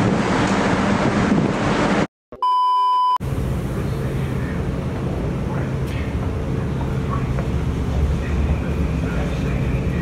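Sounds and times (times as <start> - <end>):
censor bleep: 2.4 - 3.2.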